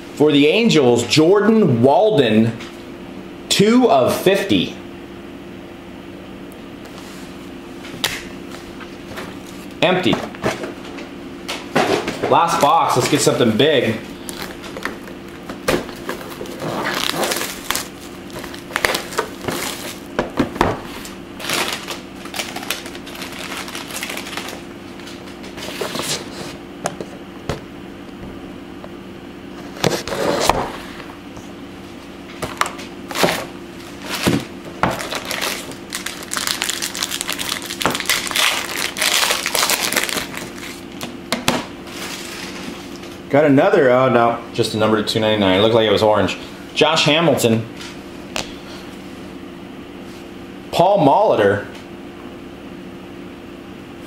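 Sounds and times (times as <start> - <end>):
faint steady hum: 0.0 - 54.0
pack wrappers crinkling: 14.1 - 20.2, 20.9 - 26.0, 33.1 - 41.1.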